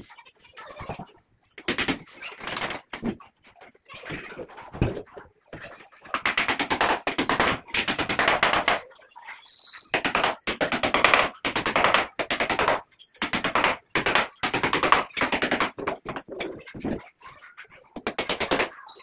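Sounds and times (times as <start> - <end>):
hammer driving nails into wood: 9.9 - 16.2.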